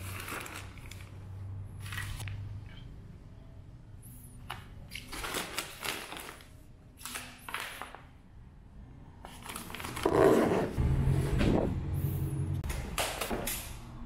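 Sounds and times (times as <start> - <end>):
plastic packs crinkling: 0.0 - 2.2, 4.9 - 8.0, 9.3 - 10.2
zipper pulled closed: 10.0 - 10.8.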